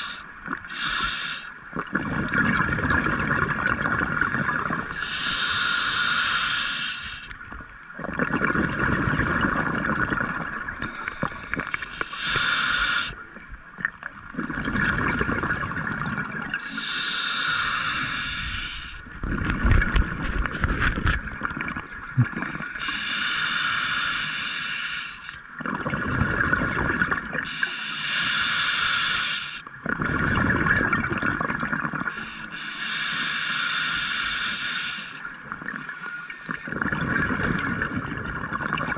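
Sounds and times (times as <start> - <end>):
regulator inhale hiss: 0.0 - 1.6, 4.9 - 7.4, 10.8 - 13.2, 16.6 - 19.0, 22.6 - 25.4, 27.4 - 29.6, 32.0 - 36.6
exhaled bubbles rushing: 1.7 - 4.9, 8.0 - 11.9, 13.9 - 16.6, 25.6 - 27.5, 29.8 - 32.1, 36.4 - 38.9.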